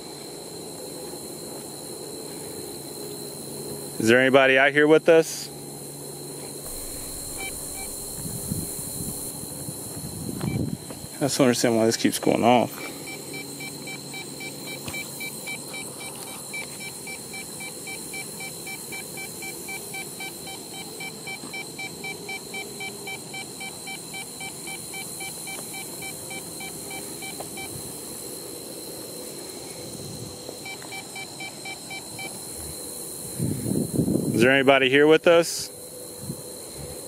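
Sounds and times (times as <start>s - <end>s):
fast electronic beeps: 6.7s - 9.3s.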